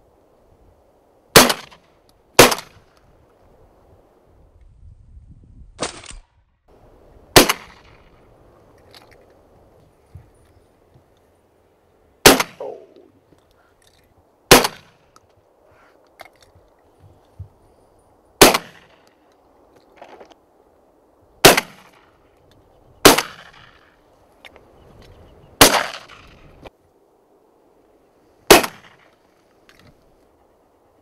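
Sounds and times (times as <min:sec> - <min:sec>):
shotgun shots: 0:01.4 - 0:01.8, 0:02.4 - 0:02.8, 0:07.4 - 0:08.0, 0:12.2 - 0:13.0, 0:14.5 - 0:15.0, 0:18.4 - 0:19.0, 0:21.4 - 0:22.0, 0:23.0 - 0:23.8, 0:25.6 - 0:26.4, 0:28.5 - 0:29.0.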